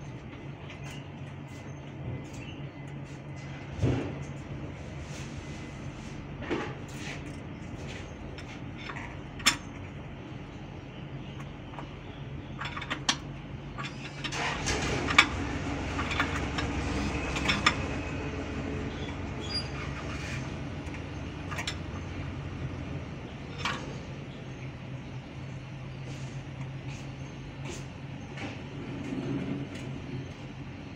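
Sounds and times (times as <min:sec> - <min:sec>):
low vehicle rumble: 0:00.0 - 0:30.9.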